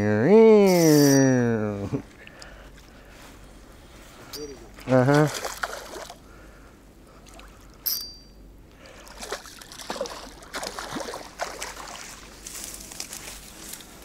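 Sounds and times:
sharp high-pitched ringing: 0.6s - 1.4s, 4.3s - 4.6s, 7.8s - 8.4s
fish splashing and thrashing: 4.8s - 6.2s, 8.9s - 13.5s.

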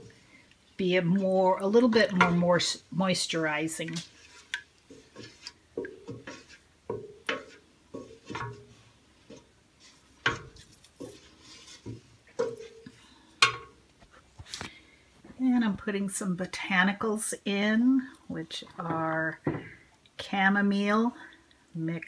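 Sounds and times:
spatula knocking and scraping pot: 1.0s - 13.8s, 18.8s - 19.8s.

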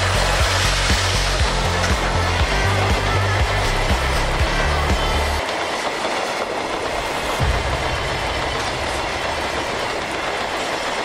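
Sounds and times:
train wheels rumbling on rails: 0.0s - 11.0s
heavy low rumble with thump: 7.3s - 11.0s.

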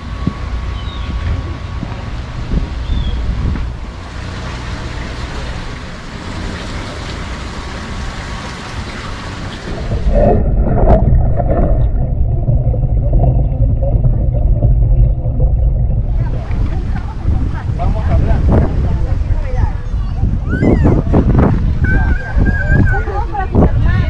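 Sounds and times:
water at the surface: 0.0s - 24.0s
wind: 0.0s - 24.0s
bubbling underwater: 9.2s - 18.8s
muffled underwater rumble: 9.5s - 24.0s.

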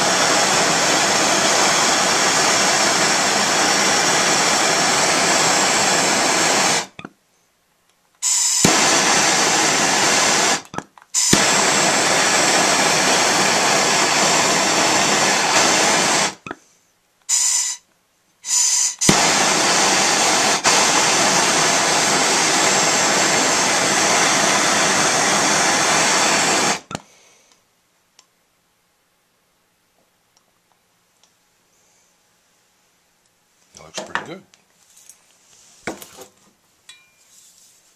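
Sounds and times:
short gas puffs: 0.0s - 7.0s, 8.2s - 27.7s
gas torch flame hissing: 0.0s - 7.1s, 8.2s - 16.6s, 17.3s - 17.8s, 18.4s - 27.1s.

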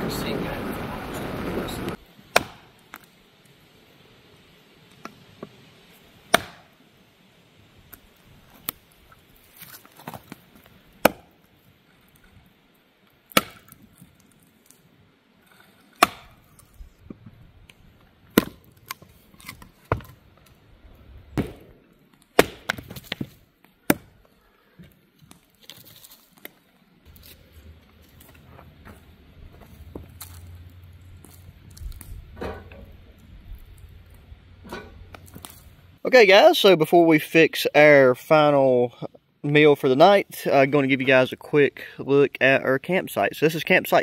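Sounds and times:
axe chopping firewood: 2.3s - 3.1s, 6.3s - 6.8s, 11.0s - 11.4s, 13.3s - 13.8s, 15.9s - 16.7s, 18.3s - 20.2s, 21.3s - 24.2s.

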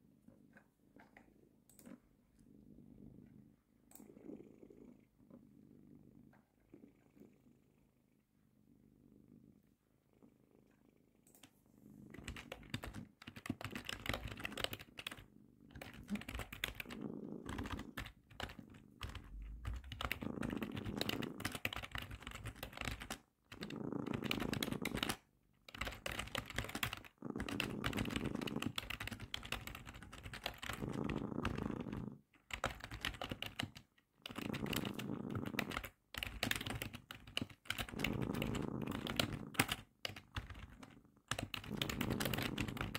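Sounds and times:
cat purring: 0.0s - 42.9s
keyboard typing: 12.2s - 42.9s.

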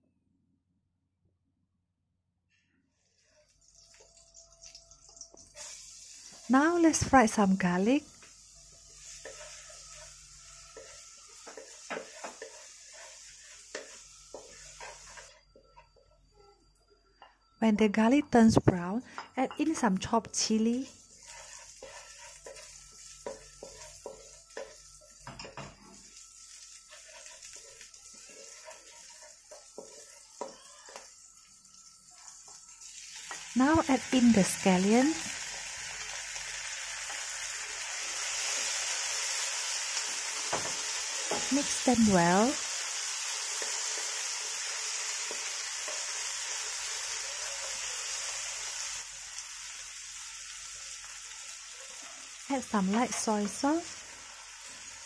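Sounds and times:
faint sizzle: 2.5s - 55.0s
wooden spatula scraping a wok: 3.0s - 7.0s, 8.2s - 16.0s, 20.6s - 31.3s, 38.1s - 49.0s
wooden spatula stirring: 9.1s - 15.8s, 21.1s - 25.0s, 26.9s - 31.1s.

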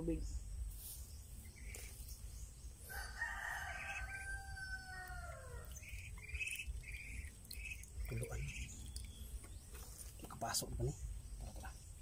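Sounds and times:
rooster crowing: 2.9s - 5.7s.

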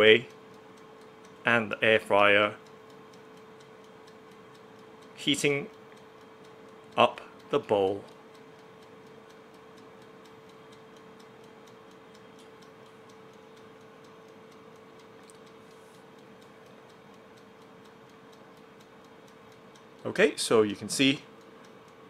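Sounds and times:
air fryer humming: 0.0s - 22.0s
mechanical timer ticking: 0.0s - 22.0s.

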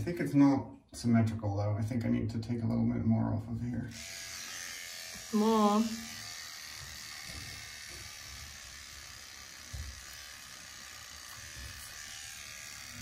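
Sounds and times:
beard trimmer buzzing: 3.9s - 13.0s.

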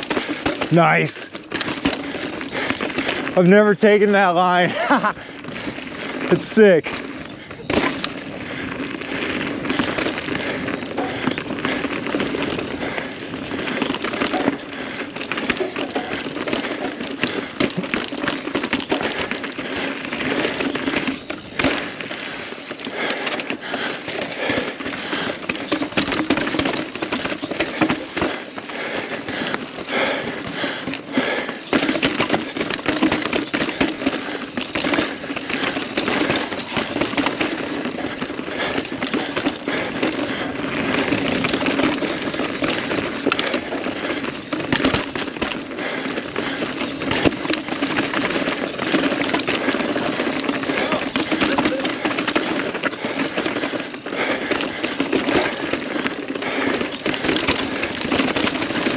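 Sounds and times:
mountain bike rattling over rock: 0.0s - 58.9s.

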